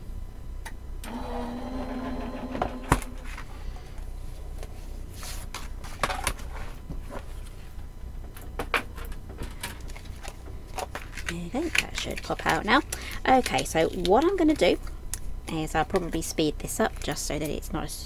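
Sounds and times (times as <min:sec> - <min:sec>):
machine motor running: 0:01.0 - 0:03.6.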